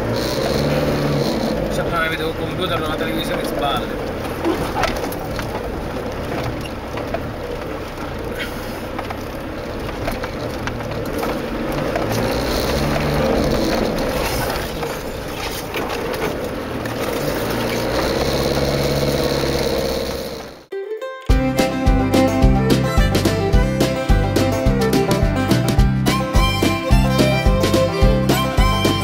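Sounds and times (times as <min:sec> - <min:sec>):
off-road vehicle engine running low: 0:00.0 - 0:20.7
vehicle body rattles and creaks: 0:00.0 - 0:20.7.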